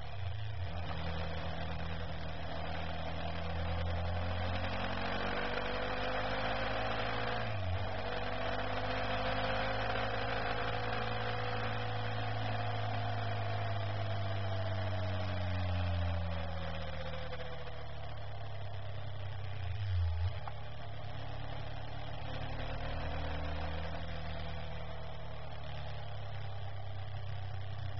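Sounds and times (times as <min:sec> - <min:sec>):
motorcycle engine cruising: 0:00.0 - 0:27.9.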